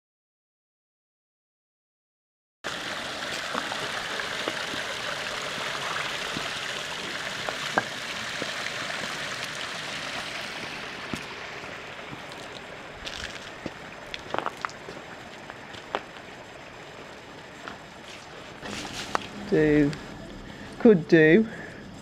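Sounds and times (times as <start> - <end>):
small stream splashing: 2.7 - 19.3.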